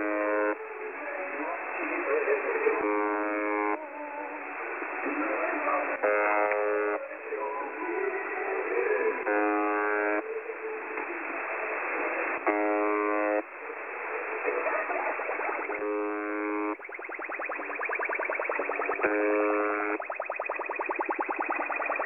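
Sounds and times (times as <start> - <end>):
harsh radio buzzes: 0.0 - 0.8, 1.4 - 7.2, 8.7 - 10.4, 11.1 - 22.0
radio interference with music: 0.0 - 22.0
fast even pulsing: 14.9 - 22.0.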